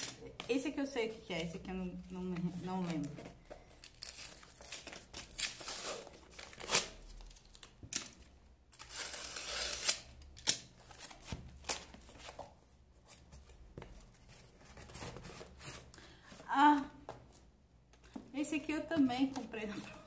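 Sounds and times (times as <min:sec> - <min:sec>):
cardboard tearing and rustling: 0:03.8 - 0:07.7, 0:08.7 - 0:12.4
knife cutting cardboard and tape: 0:08.8 - 0:11.9.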